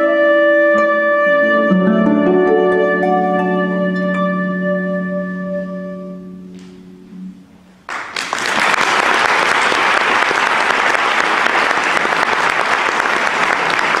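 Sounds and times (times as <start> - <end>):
low harp note: 2.8 - 7.8
audience applause: 7.9 - 14.0.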